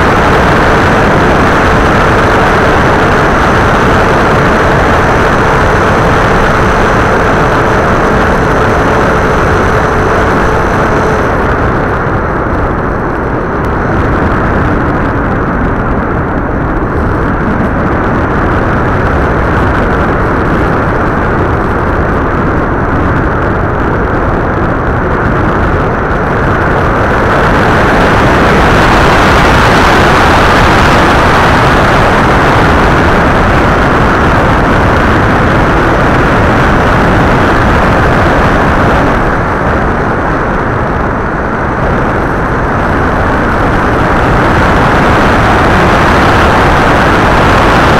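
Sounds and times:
wind rushing: 0.0s - 47.9s.

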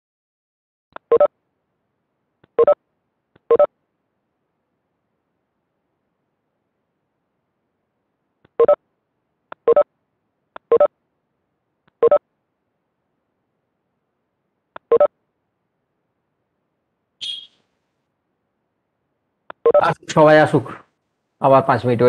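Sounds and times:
high blip: 17.2s - 17.6s.

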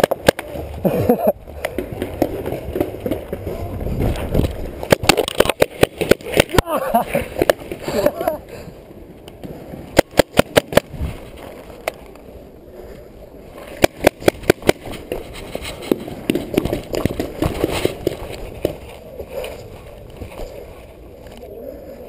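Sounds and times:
paintball marker firing: 10.0s - 10.9s.

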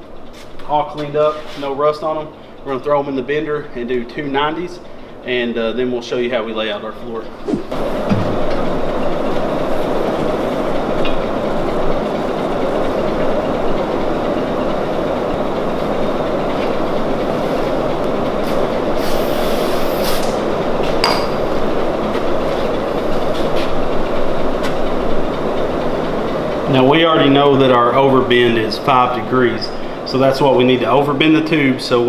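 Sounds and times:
loud mechanical drone: 7.6s - 32.0s
metal clank with ring: 21.0s - 21.4s.

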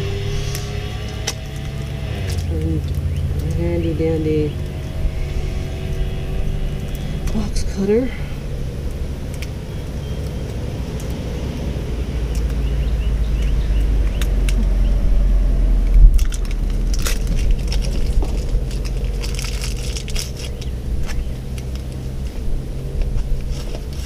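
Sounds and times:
low rumble: 0.0s - 24.0s.

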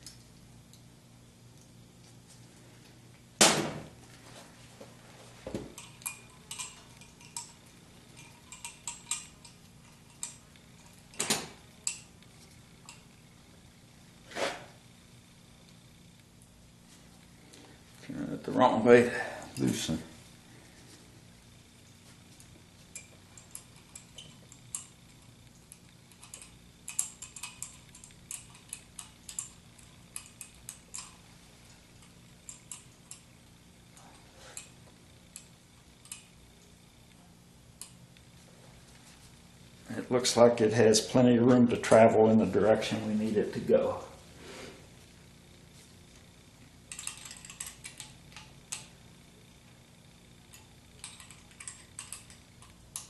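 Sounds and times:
allen wrench clicking on bolts: 5.8s - 7.6s, 8.2s - 10.4s, 26.1s - 31.2s, 46.9s - 48.9s, 50.5s - 53.0s.

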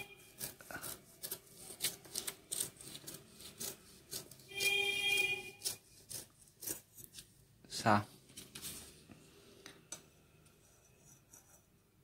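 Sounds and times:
knife blade slicing paper: 0.2s - 7.2s.

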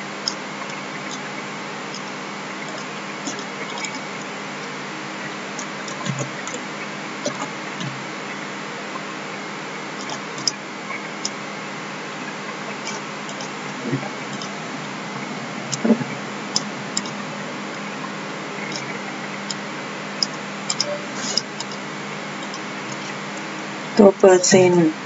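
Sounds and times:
computer mouse clicking: 20.2s - 21.8s.

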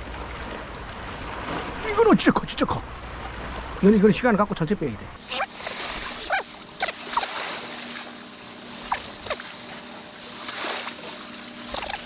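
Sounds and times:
sea water washing over rocks: 5.2s - 12.0s
short rising chirps: 8.8s - 9.5s.

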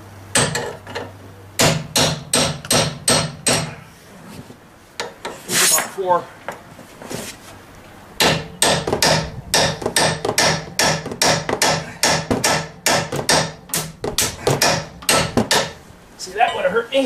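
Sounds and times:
hammer striking steel chisel: 1.6s - 3.7s, 8.2s - 15.8s.

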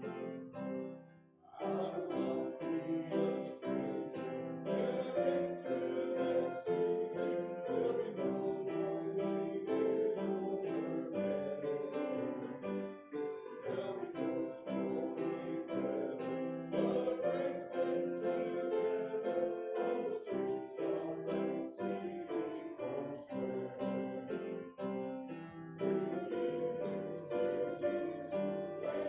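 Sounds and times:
congregation singing a hymn: 0.0s - 29.0s
piano accompaniment: 0.0s - 29.0s.

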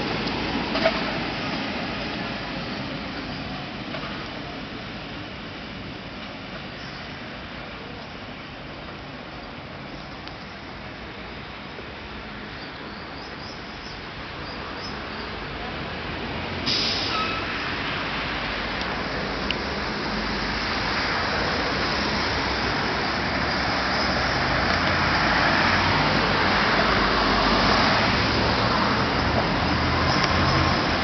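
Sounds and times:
passing road traffic: 0.0s - 31.0s.

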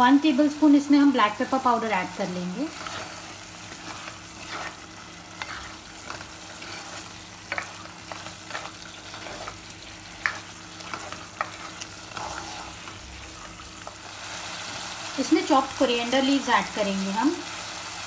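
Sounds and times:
curry sizzling in a pot: 0.0s - 18.0s
spatula scraping a pot: 2.7s - 13.0s.

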